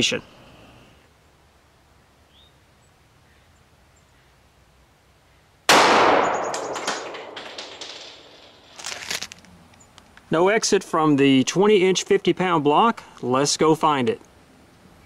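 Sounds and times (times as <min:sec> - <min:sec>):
pistol shot: 0:05.7 - 0:08.3.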